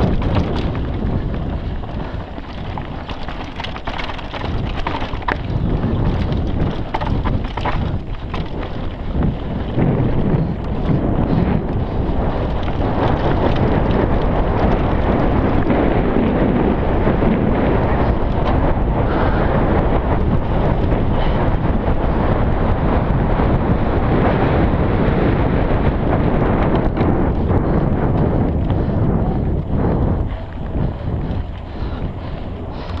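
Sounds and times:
tyres rumbling on dirt trail: 0.0 - 33.0
wind buffeting microphone: 0.0 - 33.0.

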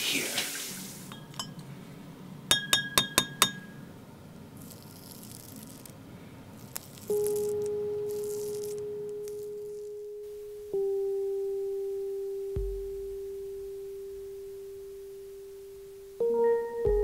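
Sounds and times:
razor clinking on glass: 1.1 - 1.7, 2.5 - 3.9
steady pure ringing tone: 1.1 - 5.4, 6.7 - 17.0
razor scraping stubble: 4.6 - 10.1.

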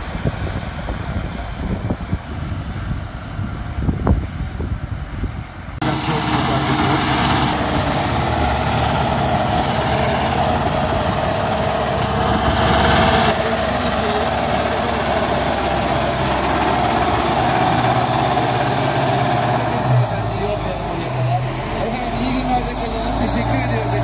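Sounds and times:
tractor diesel engine running: 5.7 - 24.0.

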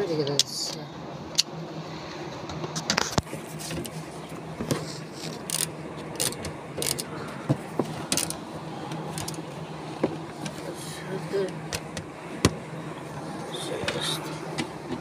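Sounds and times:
steady low hum: 0.0 - 15.0
socket wrench clicking and knocking: 5.4 - 7.0.

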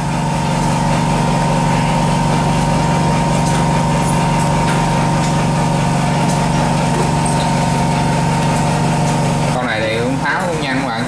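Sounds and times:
hot-air gun motor and fan hum: 0.0 - 11.0.

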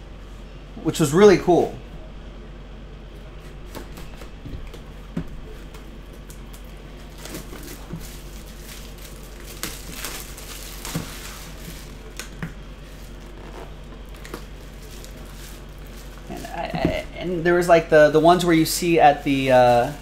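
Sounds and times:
plastic shrink-wrap crinkling: 6.1 - 16.7, 18.3 - 20.0.

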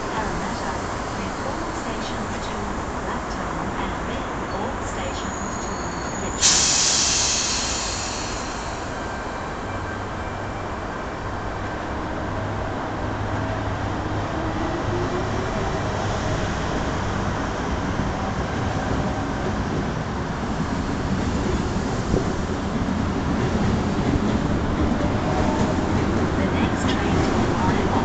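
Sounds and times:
train wheels rumbling: 12.1 - 28.0.

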